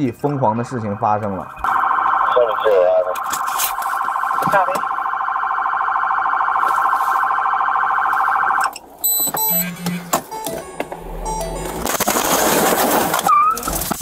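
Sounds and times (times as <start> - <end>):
police siren yelping: 0.0 - 11.9
short electronic beeps: 9.0 - 10.4.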